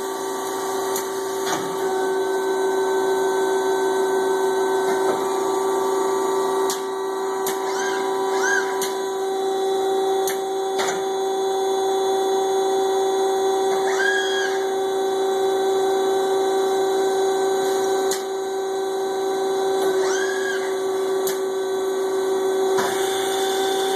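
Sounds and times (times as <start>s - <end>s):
brief whines: 6.6s - 12.6s, 13.4s - 15.4s, 19.5s - 21.7s
finishing machine humming: 15.0s - 23.9s.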